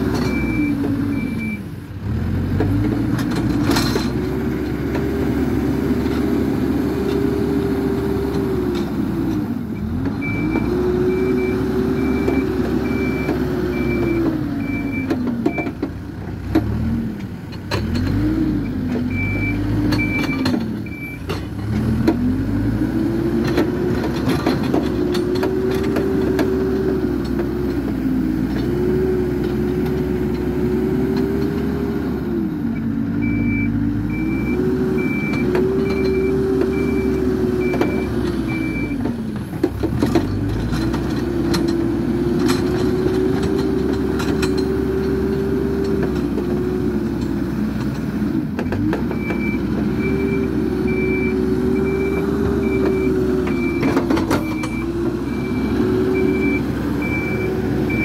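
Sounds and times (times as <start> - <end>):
diesel engine revving: 0.0 - 58.0
reversing alarm beeps: 10.2 - 15.6, 19.1 - 21.2, 33.2 - 39.0, 49.2 - 58.0
clanks and knocks: 19.9 - 22.3, 23.4 - 28.8, 37.6 - 46.5.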